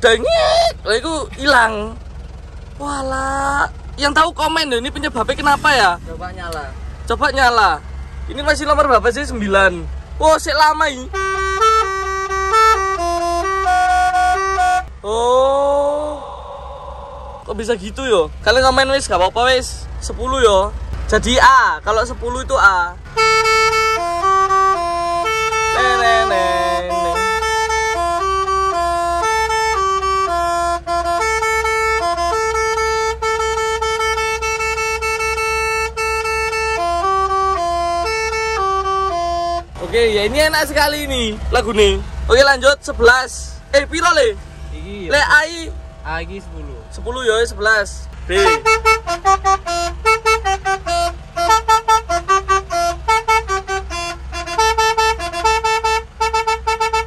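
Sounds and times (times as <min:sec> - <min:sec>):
truck melody air horn: 0:10.3 - 0:15.0, 0:23.0 - 0:39.8, 0:48.2 - 0:57.0
low pulsing: 0:11.2 - 0:29.2.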